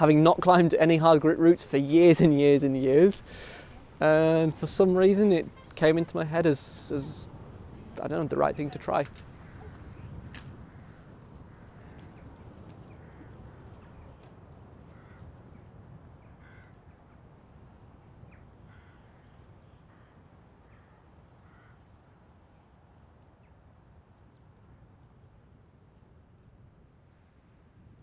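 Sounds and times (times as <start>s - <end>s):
distant bird calls: 3.2s - 17.3s, 18.2s - 23.6s.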